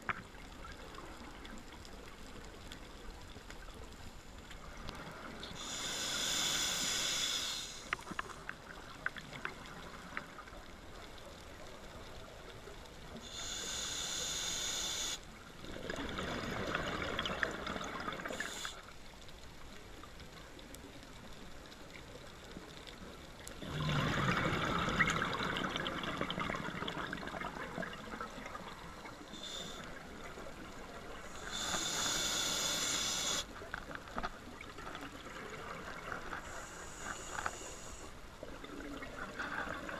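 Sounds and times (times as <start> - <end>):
regulator hissing inhalations: 5.6 - 8.0, 13.2 - 15.2, 18.3 - 18.8, 29.2 - 30.0, 31.2 - 33.5, 36.4 - 38.1
bubbling exhaled air: 23.6 - 30.1.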